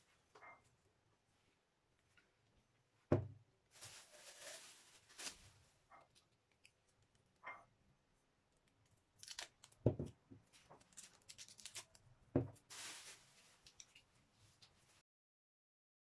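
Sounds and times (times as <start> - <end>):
plastic wrapping crinkling: 3.7 - 7.1, 9.2 - 9.9, 10.5 - 14.7.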